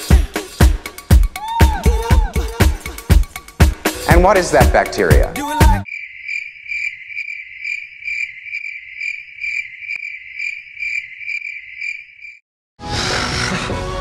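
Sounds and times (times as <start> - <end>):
crickets chirping: 5.8 - 12.4.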